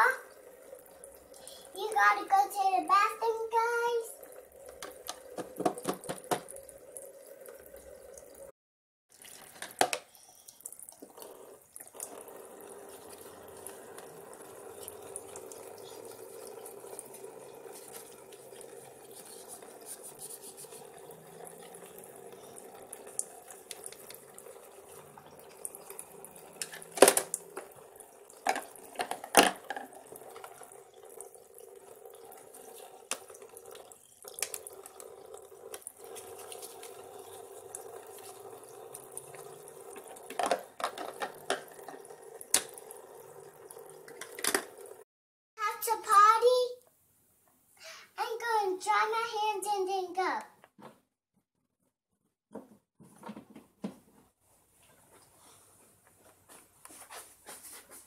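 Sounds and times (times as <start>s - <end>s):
toy faucet water running: 0.0s - 46.5s
plastic dishes clattering: 4.7s - 6.6s, 9.4s - 10.1s, 26.6s - 27.7s, 28.4s - 30.7s, 40.2s - 42.7s, 44.1s - 44.8s.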